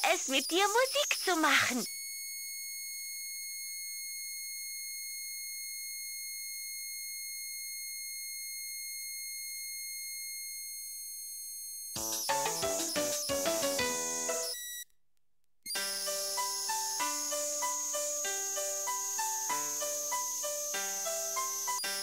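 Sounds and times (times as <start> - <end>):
high-pitched electronic tone: 15.7 - 22.0.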